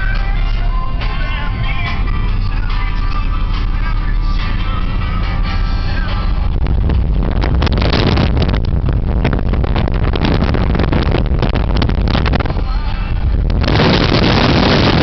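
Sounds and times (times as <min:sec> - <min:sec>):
engine and tyre rumble: 0:00.0 - 0:15.0
wind buffeting microphone: 0:03.6 - 0:15.0.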